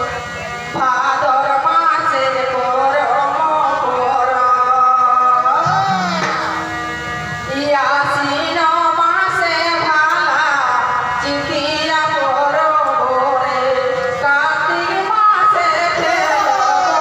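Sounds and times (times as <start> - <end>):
held accompanying notes: 5.6 - 7.7
woman singing over a pa: 7.5 - 17.0.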